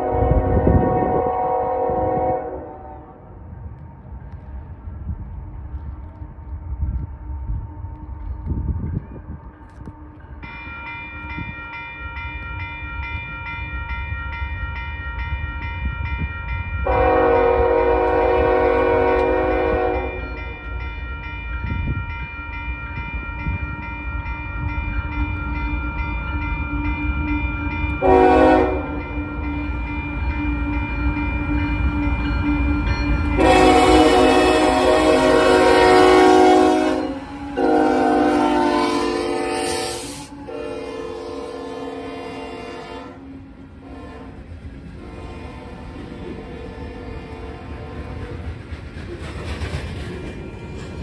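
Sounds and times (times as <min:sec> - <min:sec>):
locomotive air horn blasts: 0:00.0 - 0:03.2, 0:16.9 - 0:20.3, 0:28.0 - 0:29.1, 0:33.4 - 0:43.2, 0:43.8 - 0:44.4
crossing bell ringing: 0:08.2 - 0:44.3.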